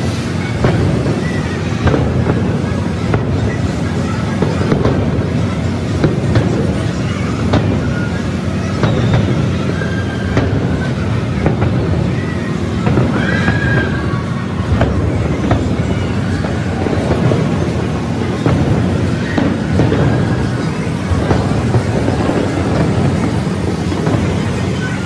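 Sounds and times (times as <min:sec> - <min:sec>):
high whistling tones: 0:00.0 - 0:04.8, 0:05.4 - 0:25.0
fireworks shells bursting: 0:00.0 - 0:25.0
sharp firework bangs: 0:00.0 - 0:25.0.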